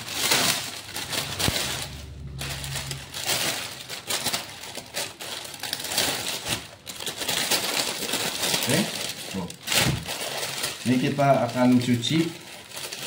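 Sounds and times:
plastic bag crinkling: 0.0 - 13.0
low hum: 0.6 - 5.4.

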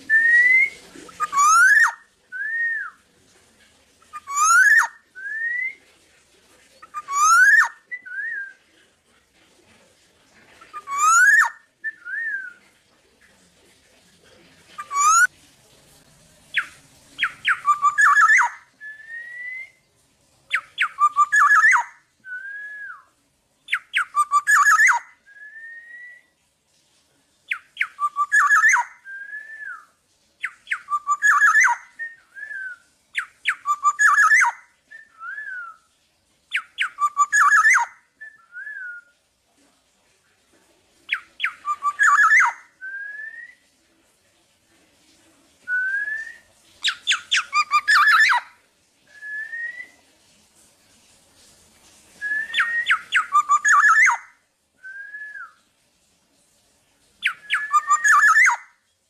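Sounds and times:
bird singing: 0.0 - 3.0, 4.1 - 5.8, 6.8 - 8.6, 10.7 - 12.6, 14.8 - 15.3, 16.5 - 19.8, 20.5 - 23.0, 23.7 - 26.2, 27.5 - 35.9, 36.5 - 39.1, 41.1 - 43.6, 45.9 - 48.5, 52.2 - 54.3, 57.2 - 58.7.

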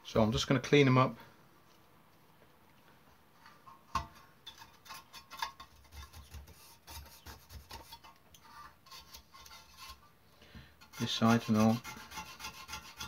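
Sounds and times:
hand tool scratching metal seams: 4.5 - 10.0, 10.8 - 13.0.

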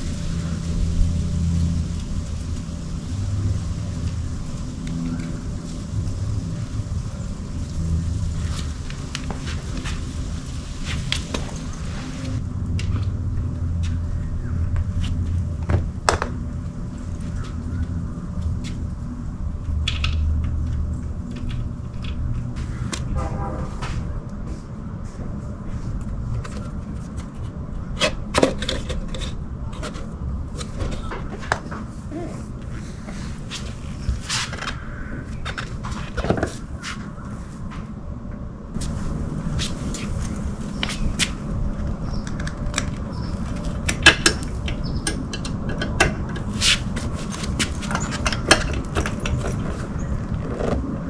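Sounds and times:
steady low rumble: 0.0 - 51.0.

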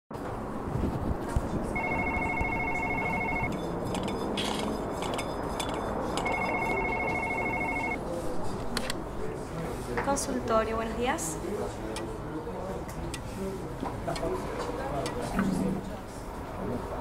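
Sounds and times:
telephone ringing: 1.8 - 3.6, 6.2 - 8.0.

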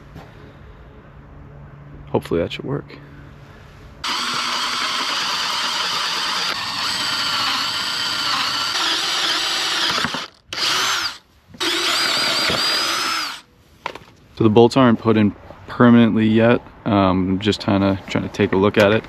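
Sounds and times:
power drill whining: 4.0 - 13.5.

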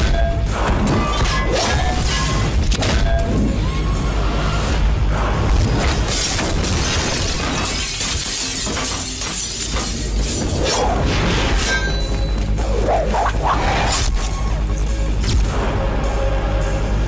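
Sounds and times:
dramatic background music: 0.0 - 17.0
windshield glass shattering: 5.9 - 10.4.

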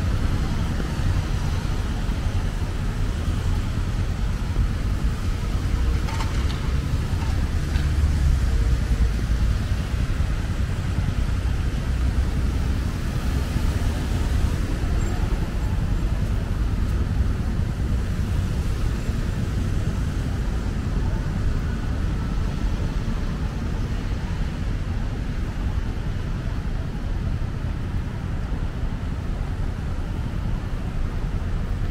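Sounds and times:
rumble of passing cars: 0.0 - 31.9.

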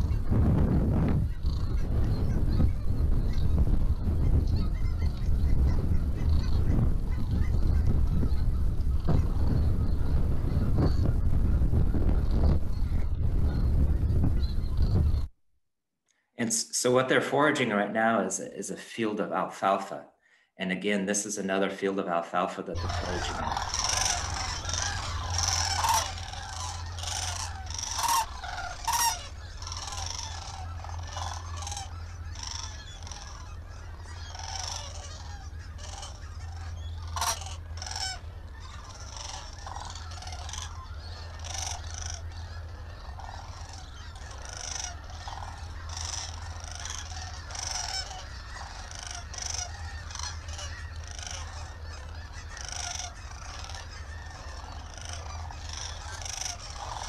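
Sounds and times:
cranes calling: 0.0 - 15.3, 22.8 - 57.0
steady low hum: 0.0 - 15.3, 22.8 - 57.0.

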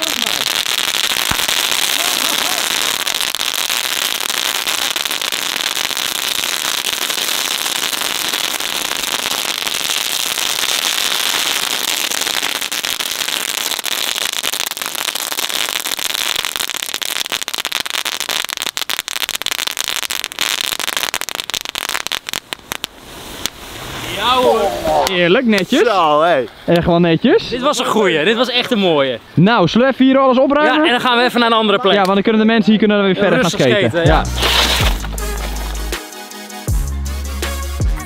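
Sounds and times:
firecracker ribbon crackling: 0.0 - 26.6, 34.1 - 36.7.

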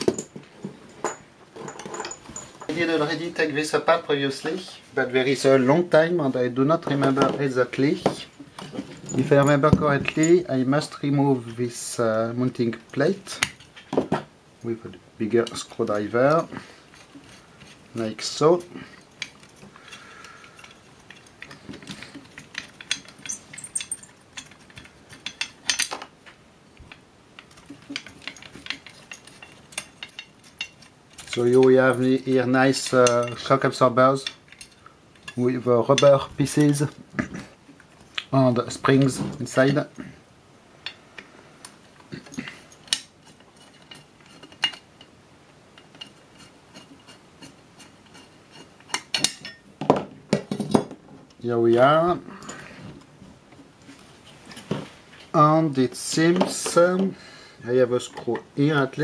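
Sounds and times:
screwdriver clicking and scraping metal: 27.4 - 31.7, 41.6 - 45.1, 45.8 - 49.6.

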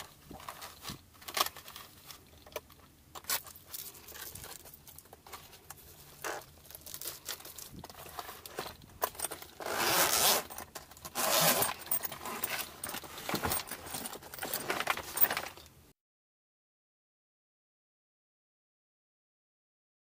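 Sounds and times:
case scrapes and knocks: 3.2 - 15.7
zipper being pulled shut: 9.2 - 15.2.

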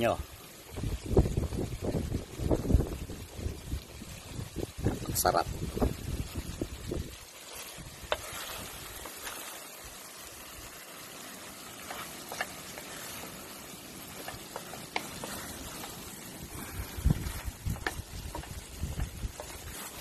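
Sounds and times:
food sizzling in a pan: 0.0 - 20.0
wooden spatula scraping a pan: 7.2 - 20.0.

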